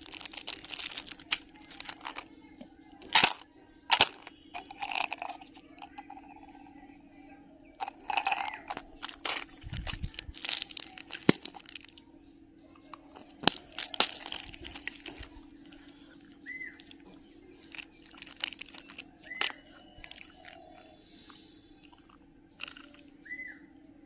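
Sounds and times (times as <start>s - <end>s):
crinkling plastic wrappers: 0.0s - 2.3s, 7.8s - 12.0s, 12.9s - 20.8s, 22.6s - 23.1s.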